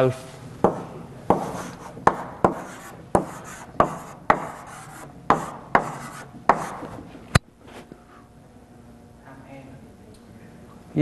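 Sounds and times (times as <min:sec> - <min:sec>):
chalk tapping on blackboard: 0:00.6 - 0:06.9
chalk scratching on blackboard: 0:01.3 - 0:06.9.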